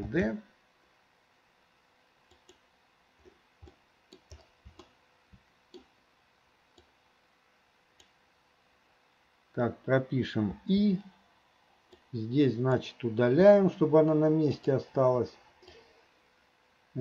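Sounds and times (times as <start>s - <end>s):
mouse and keyboard clicks: 2.3s - 2.6s, 3.2s - 5.0s.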